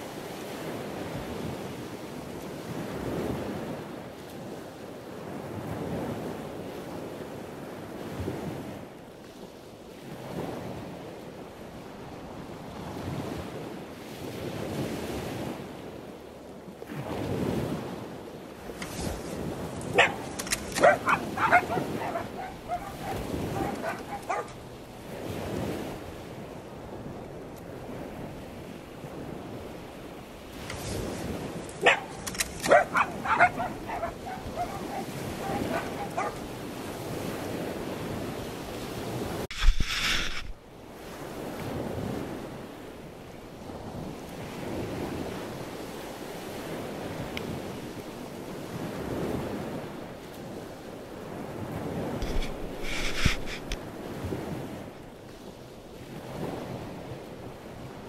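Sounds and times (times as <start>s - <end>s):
wind: 0.0s - 58.0s
surf: 16.8s - 43.2s
small dogs yipping and barking: 19.8s - 24.6s, 31.8s - 36.5s.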